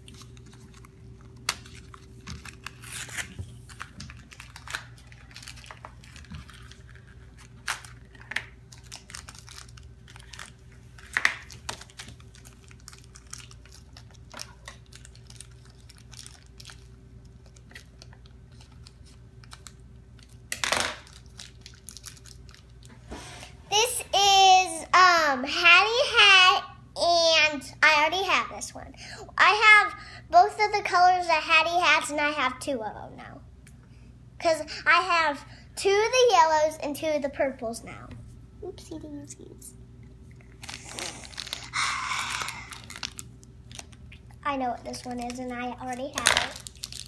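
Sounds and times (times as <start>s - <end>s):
packaging crinkling and tearing: 0.0s - 22.9s, 40.2s - 47.0s
faint steady hum: 0.0s - 47.0s.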